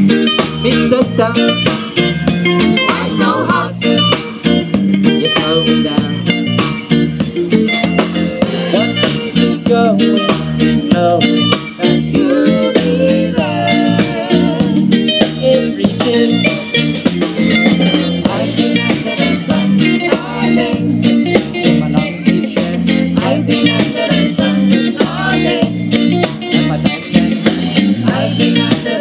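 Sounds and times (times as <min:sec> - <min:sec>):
drum kit beat: 0:00.0 - 0:29.0
electric guitar: 0:00.0 - 0:29.0
women singing: 0:02.8 - 0:03.8, 0:12.1 - 0:14.7, 0:23.2 - 0:25.8, 0:27.4 - 0:29.0.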